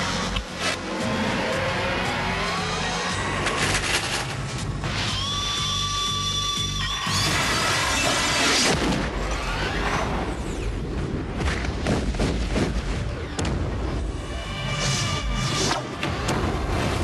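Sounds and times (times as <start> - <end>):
trailer music: 0.0 - 11.5.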